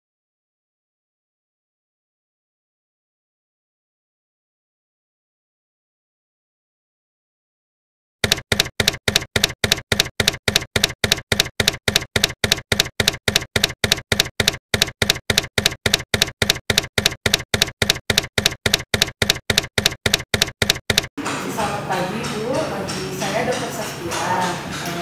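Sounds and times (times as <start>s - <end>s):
typewriter keystroke clicks: 8.2s - 21.1s.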